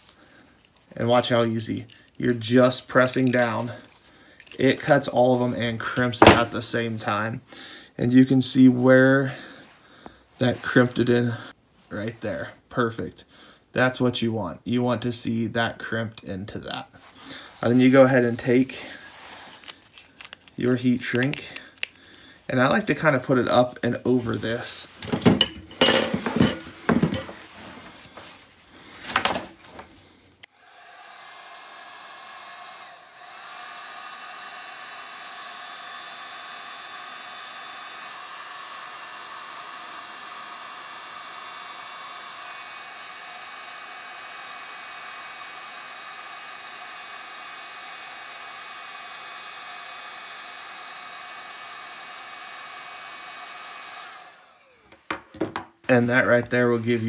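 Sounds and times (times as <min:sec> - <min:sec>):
heat gun fan whine: 0:01.2 - 0:07.3, 0:24.5 - 0:27.4, 0:28.8 - 0:55.6
handling knocks and clicks: 0:25.0 - 0:27.4.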